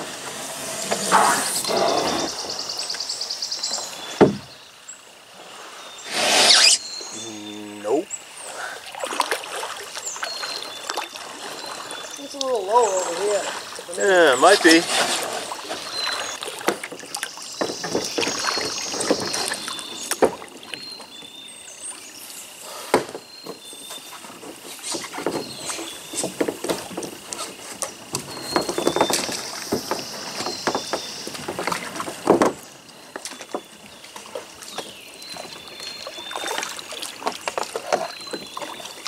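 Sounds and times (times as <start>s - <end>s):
paddle knocks: 4.1s - 4.5s, 14.4s - 20.8s, 22.9s - 35.6s
high chirps: 6.1s - 8.0s
paddle splashing in water: 8.4s - 39.0s.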